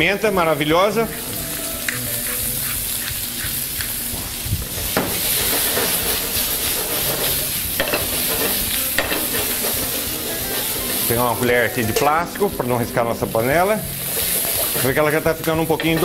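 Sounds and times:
potatoes sizzling in a pan: 0.0 - 16.0
pan knocking on burner: 4.9 - 6.1, 7.0 - 9.9.

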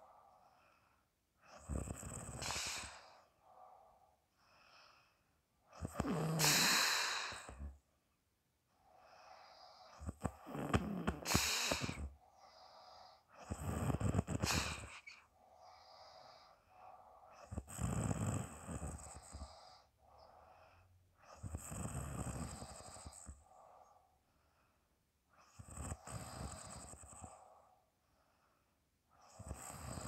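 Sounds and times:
quiet breaths: 0.0 - 30.0
people snoring: 1.5 - 3.2, 5.7 - 7.7, 9.0 - 19.9, 21.3 - 23.7, 25.5 - 27.5, 29.3 - 30.0.

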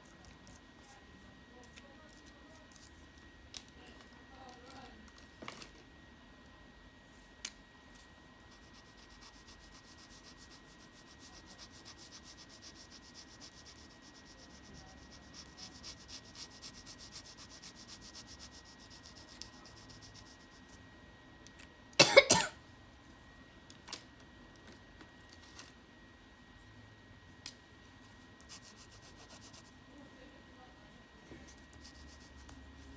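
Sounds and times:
pencil scratching on paper: 8.5 - 20.8, 28.4 - 29.8, 31.4 - 32.9
person coughing: 22.0 - 22.6.

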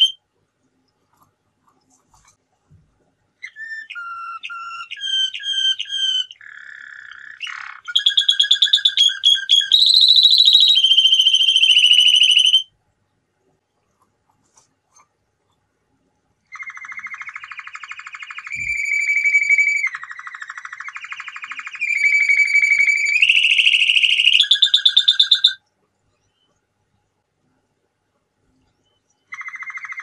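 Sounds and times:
canary singing trills: 0.0 - 0.2, 3.4 - 12.7, 16.4 - 25.6, 28.7 - 30.0.

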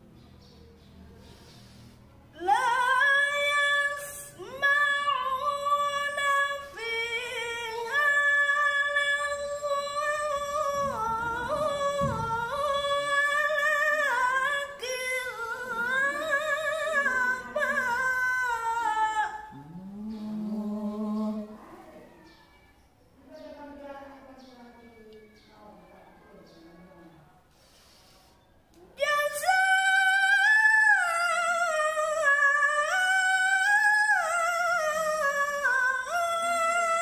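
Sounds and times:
woman reciting in chant: 0.1 - 22.4, 23.2 - 27.9, 28.8 - 37.0
breaths: 1.1 - 2.3, 27.5 - 28.6.

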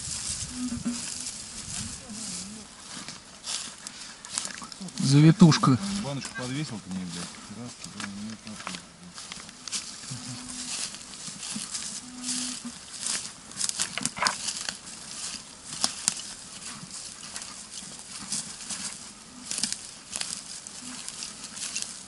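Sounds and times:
footsteps crunching through dry leaves: 0.0 - 22.0
metal detector tone: 0.4 - 1.3, 11.8 - 12.7, 20.8 - 21.1.

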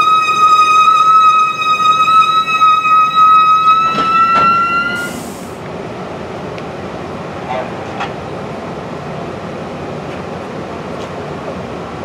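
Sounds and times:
train wheels squealing: 0.0 - 5.4
train rumble: 0.0 - 12.0.

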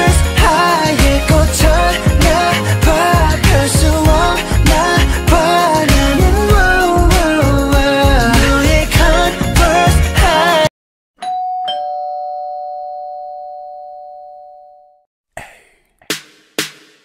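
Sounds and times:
pop song with singing: 0.0 - 10.7
two-tone doorbell chime: 11.2 - 15.0.

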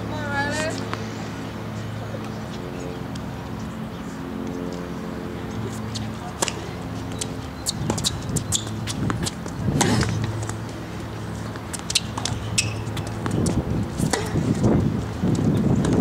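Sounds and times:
tennis ball hitting rackets: 5.9 - 14.6
ball bouncing on hard court: 11.5 - 14.5.

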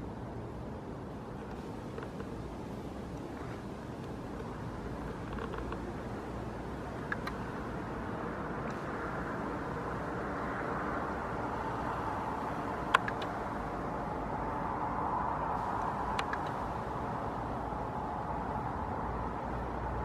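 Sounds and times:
distant road traffic: 0.0 - 20.0
sharp click: 15.8 - 16.6.

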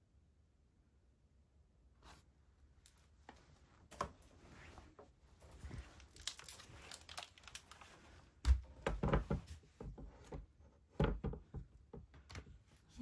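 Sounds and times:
crinkling: 2.1 - 10.4.

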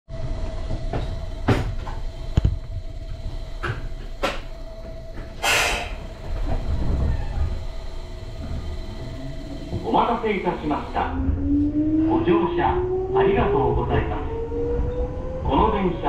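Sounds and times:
low rumble: 0.1 - 16.0
steady electric hum: 0.2 - 11.6
air hiss burst: 5.4 - 6.0.

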